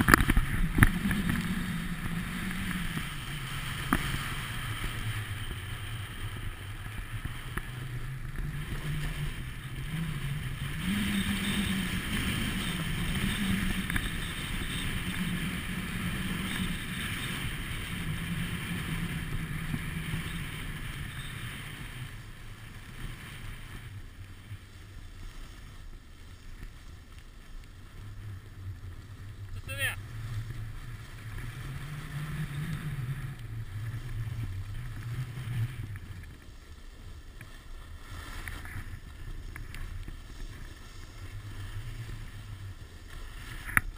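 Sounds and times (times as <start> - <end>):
wind on microphone: 0.0 - 27.1
skiing on snow hiss: 0.0 - 43.9
wavering low hum: 0.0 - 43.9.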